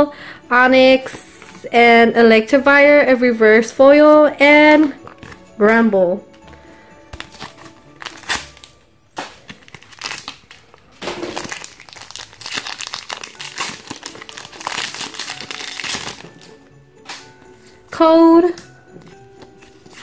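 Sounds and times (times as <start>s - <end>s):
foil wrapper crinkling: 7.1s - 17.2s.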